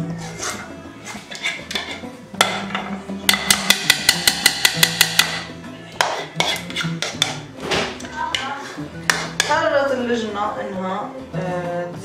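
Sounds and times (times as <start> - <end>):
spoon scraping saucepan: 0.1 - 7.5.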